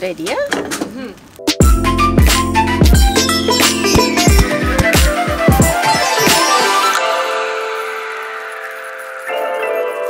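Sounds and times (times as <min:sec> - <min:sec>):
electronic music with kick drum: 0:01.5 - 0:09.3.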